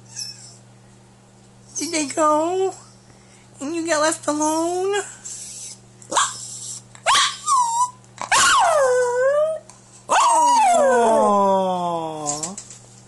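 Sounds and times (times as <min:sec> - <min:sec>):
small dog howling and yelping: 0:06.1 - 0:11.6.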